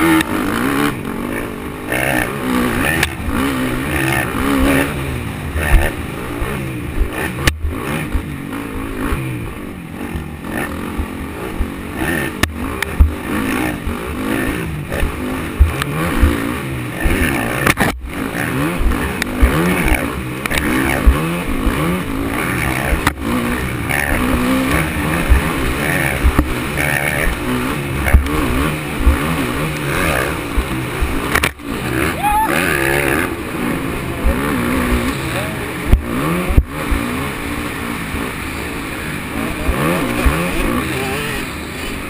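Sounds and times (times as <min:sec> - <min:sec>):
dirt bike engine revving: 0:00.0 - 0:42.0
low thumps: 0:10.9 - 0:14.0, 0:14.8 - 0:31.8, 0:35.8 - 0:37.2.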